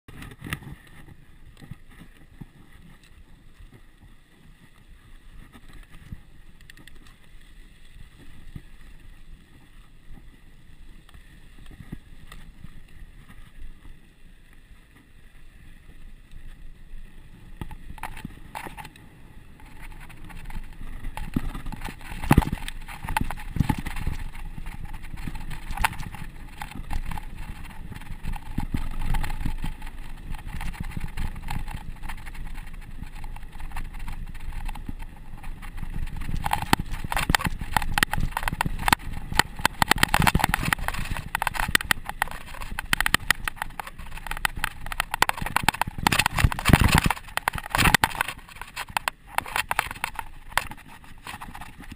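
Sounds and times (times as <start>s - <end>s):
wind and tyre noise: 0.1s - 51.9s
bike clattering over bumps: 19.6s - 51.9s.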